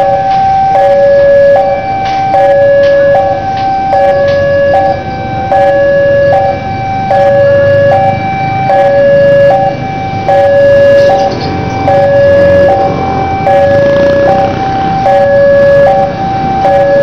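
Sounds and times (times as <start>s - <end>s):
diesel locomotive rumble: 0.0s - 17.0s
two-tone crossing alarm: 0.0s - 17.0s.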